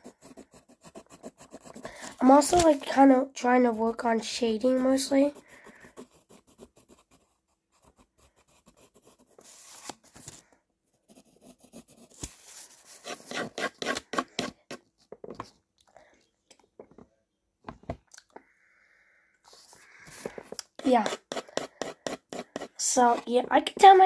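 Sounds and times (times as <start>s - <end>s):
pencil shading on paper: 0.0s - 2.7s, 4.4s - 9.9s, 11.0s - 14.8s, 20.1s - 23.4s.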